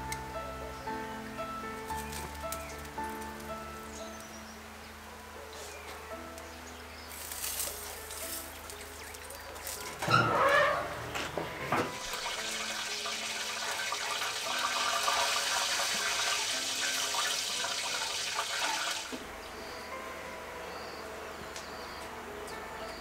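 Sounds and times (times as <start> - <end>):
coals crackling: 0.0 - 19.3
grill hissing and sizzling: 5.6 - 19.2.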